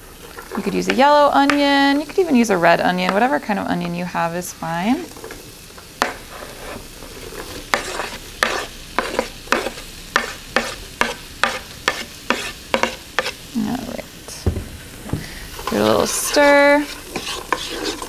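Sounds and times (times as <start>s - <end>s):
onion sizzling in oil: 0.0s - 18.0s
spatula scraping cutting board: 6.0s - 13.4s, 15.6s - 18.0s.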